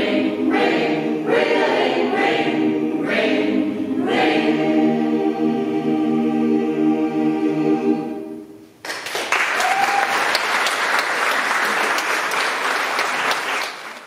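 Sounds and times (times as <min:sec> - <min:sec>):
choir singing sustained chord: 0:00.0 - 0:08.6
audience applause: 0:08.8 - 0:14.0.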